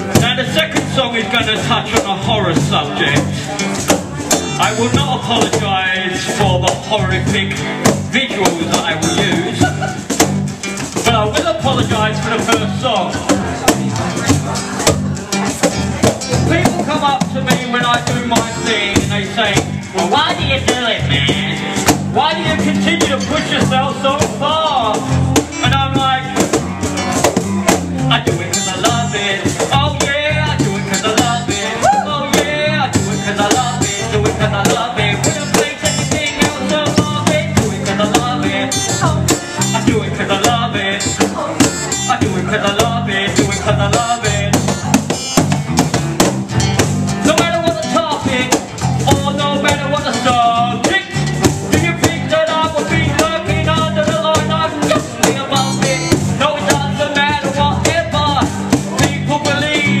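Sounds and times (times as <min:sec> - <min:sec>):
person rapping into a microphone: 0:00.0 - 0:10.0, 0:11.0 - 0:26.6, 0:28.0 - 0:45.4, 0:47.2 - 1:00.0
bass guitar: 0:00.0 - 1:00.0
cajon beat: 0:00.0 - 1:00.0
strummed acoustic guitar: 0:00.0 - 1:00.0.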